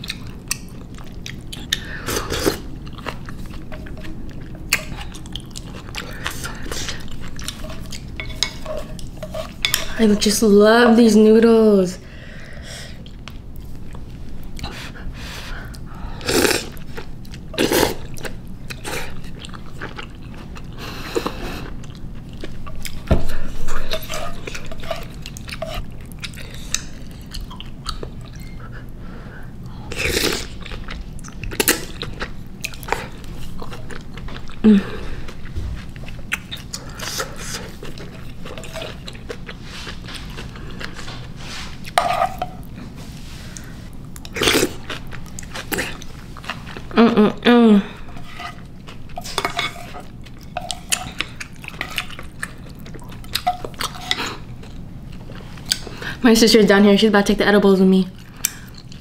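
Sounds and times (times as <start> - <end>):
wet chewing: 0.0 - 10.1, 16.5 - 29.0, 48.0 - 56.1.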